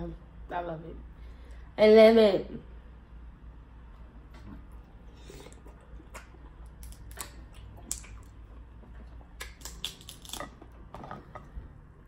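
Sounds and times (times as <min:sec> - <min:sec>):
crab shell cracking: 0:06.8 - 0:08.3, 0:09.4 - 0:10.6.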